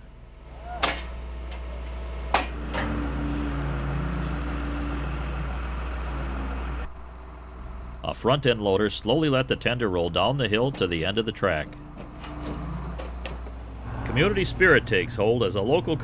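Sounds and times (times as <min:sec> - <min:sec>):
loader engine running: 0:00.0 - 0:16.0
metal clanks of steel on rail: 0:00.8 - 0:03.2.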